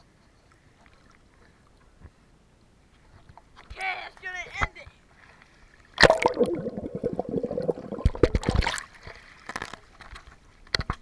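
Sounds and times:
pool water splashing and gurgling: 5.9s - 9.7s.

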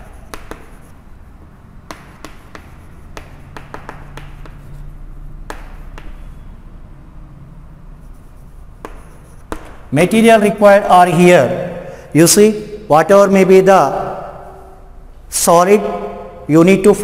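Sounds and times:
chalk tapping on blackboard: 0.0s - 6.6s, 7.9s - 10.2s
faint room hum: 0.0s - 17.0s.

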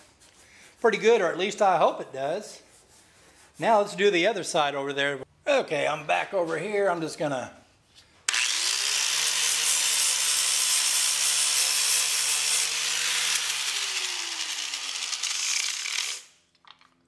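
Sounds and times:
angle grinder grinding fiberglass: 8.3s - 16.3s
grinder motor winding down: 8.3s - 16.3s.

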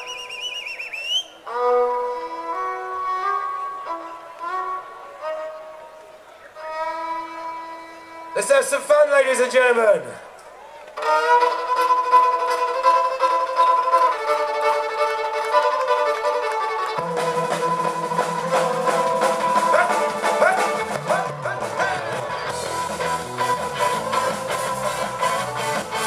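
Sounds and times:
fiddle long held notes: 1.3s - 8.9s, 11.0s - 26.0s
drums keeping a beat: 16.9s - 26.0s
bass notes: 17.0s - 26.0s.

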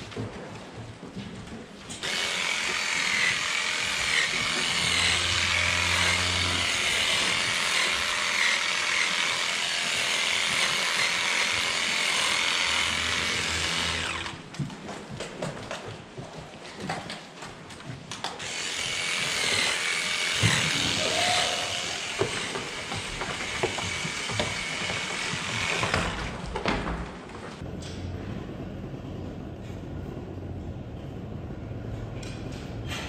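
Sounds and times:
electric hair clipper whining: 2.0s - 14.4s, 18.4s - 26.0s.

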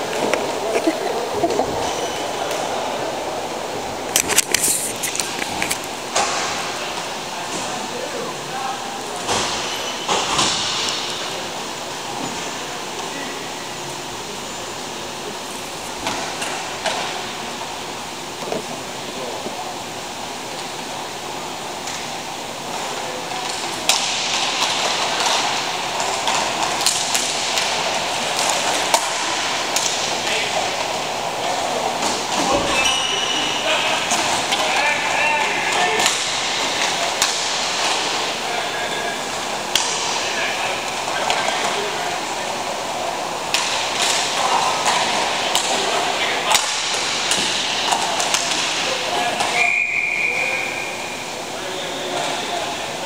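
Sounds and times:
hubbub of voices: 0.0s - 53.0s
hockey sticks clacking: 4.1s - 7.6s, 23.2s - 42.5s, 43.2s - 49.7s
skate wheels rolling on rink: 20.3s - 50.8s.

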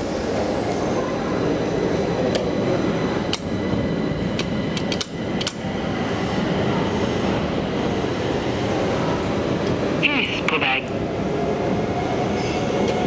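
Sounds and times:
station rumbling: 0.0s - 13.0s.

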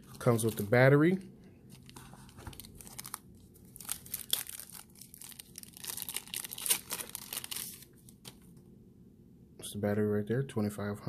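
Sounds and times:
plastic wrapper crinkling: 0.0s - 8.4s.

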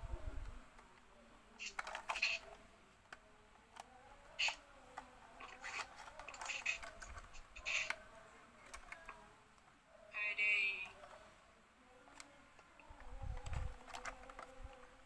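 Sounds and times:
plastic toy train clicking and scraping: 1.6s - 8.0s, 13.2s - 15.0s.

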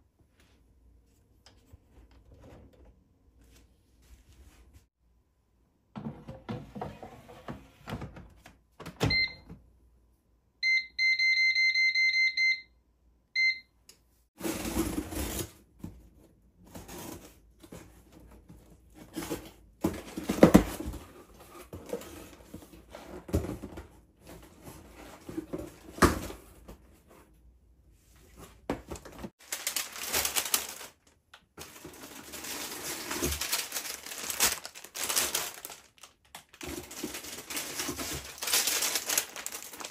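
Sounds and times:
appliance control panel beeps: 9.0s - 9.5s, 10.6s - 12.8s, 13.4s - 13.8s.

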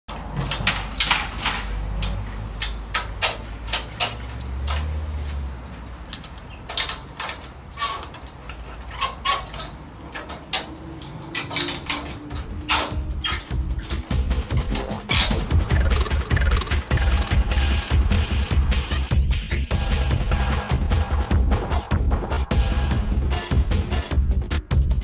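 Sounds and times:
sharp knocks and clinks: 0.6s - 4.4s, 5.9s - 7.6s.

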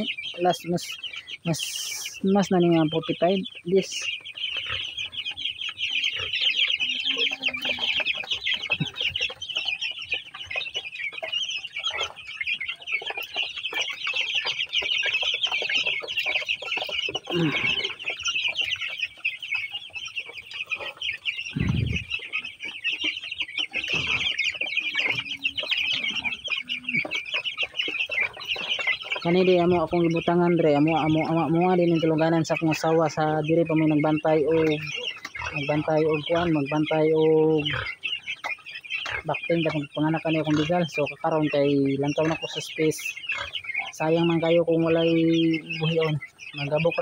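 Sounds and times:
chicks peeping: 0.0s - 47.0s
dull low thumps: 21.5s - 22.2s.

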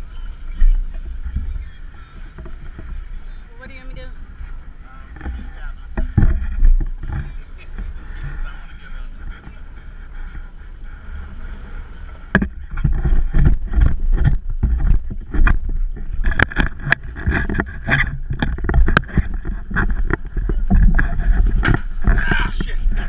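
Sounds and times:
water splashing: 0.0s - 23.0s
wind rumble on microphone: 0.0s - 23.0s
sharp irregular knocks: 5.1s - 7.4s, 12.3s - 22.8s.

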